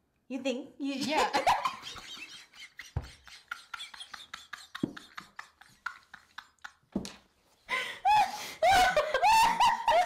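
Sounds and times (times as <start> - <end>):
women laughing hard: 1.3 - 6.9, 7.7 - 10.0.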